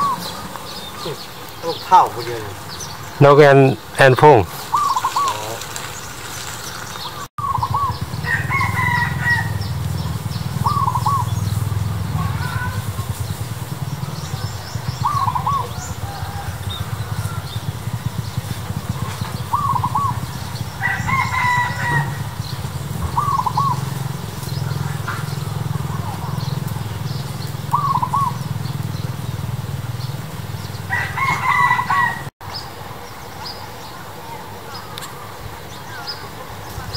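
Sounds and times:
double-noted bird calls: 0:00.0 - 0:32.3
rooster crowing: 0:07.4 - 0:11.4, 0:15.0 - 0:18.1, 0:19.6 - 0:23.8, 0:30.8 - 0:32.3
steady low rumble: 0:07.4 - 0:21.1.

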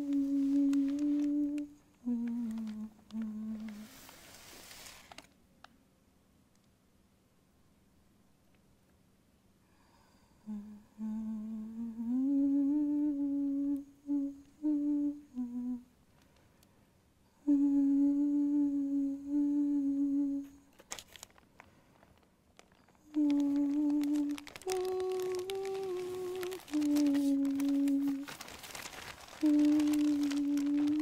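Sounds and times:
woman humming: 0:00.0 - 0:04.1, 0:10.4 - 0:15.9, 0:17.3 - 0:20.7, 0:22.8 - 0:31.0
short crackles: 0:00.0 - 0:05.3, 0:20.3 - 0:31.0.

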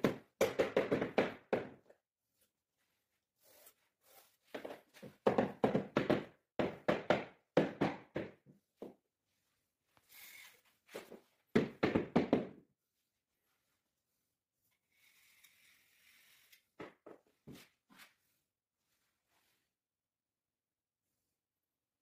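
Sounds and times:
rubber mallet thudding on floorboard: 0:00.0 - 0:01.8, 0:04.6 - 0:08.5.

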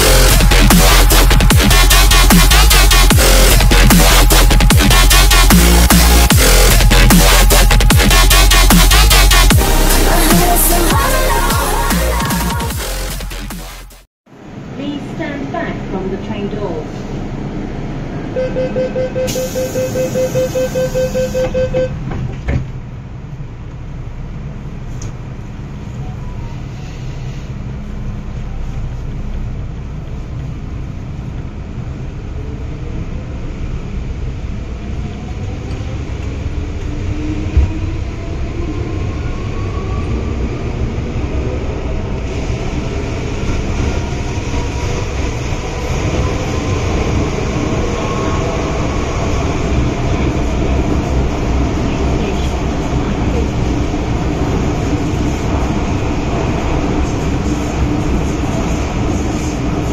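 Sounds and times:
train running rumble: 0:00.0 - 0:18.4, 0:19.2 - 0:59.9
rapid door warning beeps: 0:18.4 - 0:22.0
train doors thumping shut: 0:21.3 - 0:22.8.

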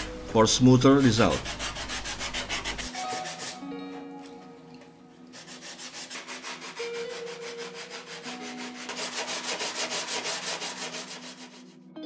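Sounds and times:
sandpaper sanding foam: 0:00.8 - 0:03.6, 0:05.3 - 0:11.7.

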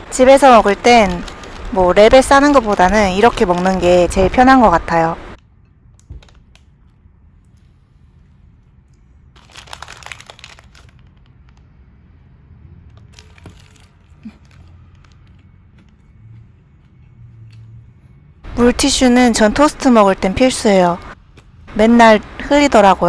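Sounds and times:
paper wrapper crinkling: 0:00.4 - 0:04.2, 0:09.3 - 0:11.7, 0:13.0 - 0:16.0.

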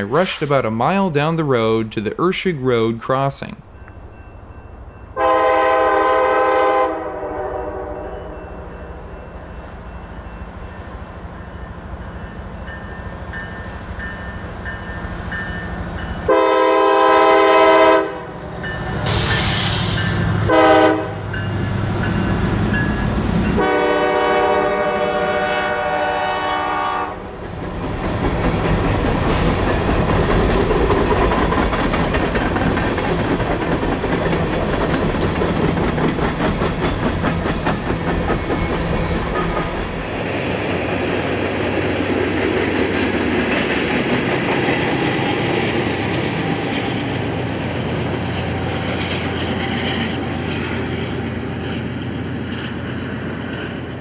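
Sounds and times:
diesel locomotive horn: 0:05.2 - 0:08.4, 0:16.2 - 0:18.4, 0:19.0 - 0:21.5, 0:23.4 - 0:27.3
train wheels clicking over rails: 0:27.4 - 0:54.0.

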